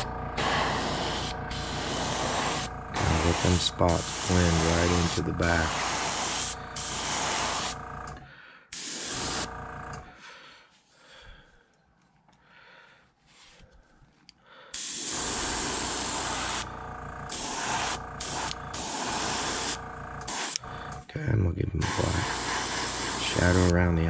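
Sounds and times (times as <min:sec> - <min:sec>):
airbrush spraying: 0:00.0 - 0:07.8, 0:08.7 - 0:09.6, 0:14.8 - 0:20.6, 0:21.8 - 0:23.8.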